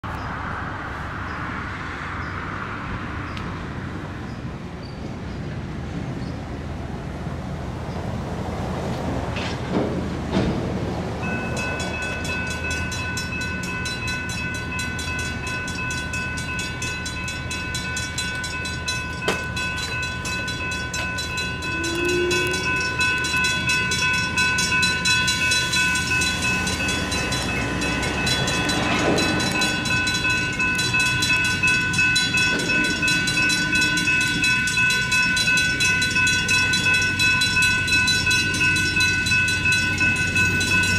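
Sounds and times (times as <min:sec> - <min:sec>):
railroad crossing electronic bell: 0:11.0 - 0:40.9.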